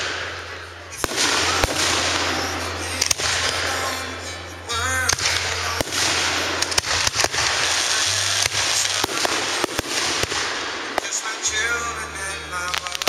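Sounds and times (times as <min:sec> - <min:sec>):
fireworks bangs: 0:00.0 - 0:13.0
crackling hissing wash: 0:05.2 - 0:11.5.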